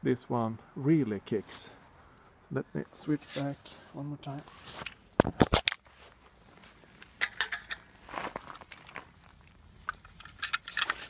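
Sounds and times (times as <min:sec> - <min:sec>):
sharp handling clicks and knocks: 0:07.0 - 0:11.0.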